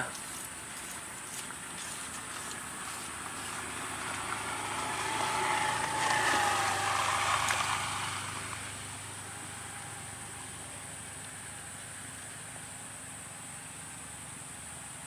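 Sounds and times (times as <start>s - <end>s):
distant engine passing by: 0.0s - 15.0s.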